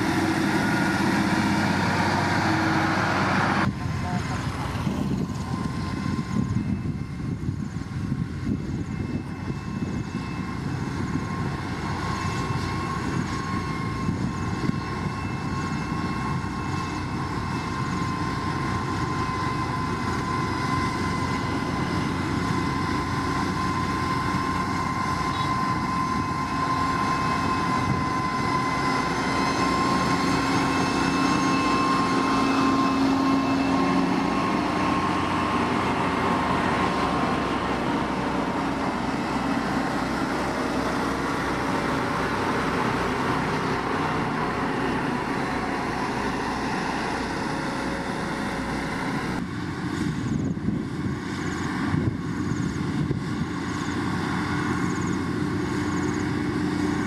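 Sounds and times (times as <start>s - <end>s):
diesel engine drone: 0.0s - 57.0s
high machine whine: 0.0s - 57.0s.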